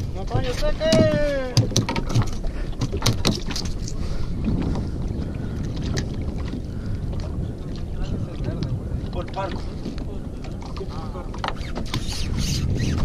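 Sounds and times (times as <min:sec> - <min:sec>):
wind and water rumble: 0:00.0 - 0:13.0
sharp clicks and knocks: 0:00.9 - 0:03.8.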